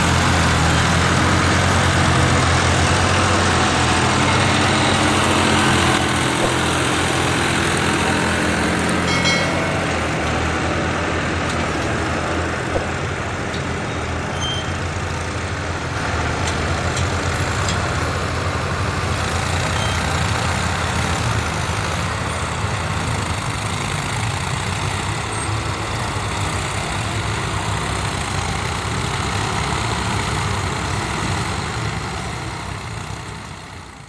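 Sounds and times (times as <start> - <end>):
tractor diesel engine under load: 0.0 - 34.0.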